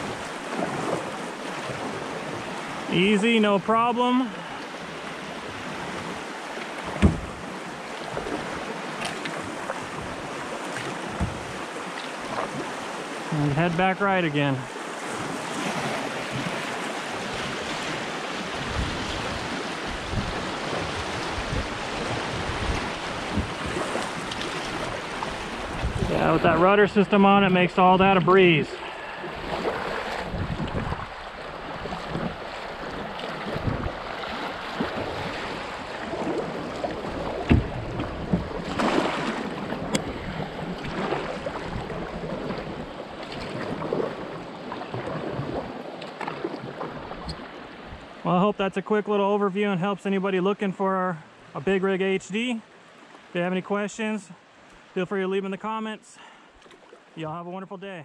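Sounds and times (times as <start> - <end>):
river water rushing and splashing: 0.0 - 48.8, 51.2 - 55.3
wind buffeting microphone: 17.2 - 27.1, 29.3 - 44.3.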